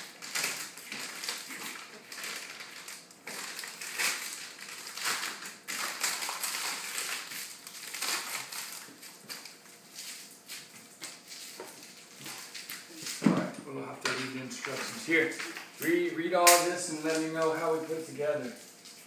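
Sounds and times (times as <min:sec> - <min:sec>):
packaging crinkling: 0:00.0 - 0:13.3.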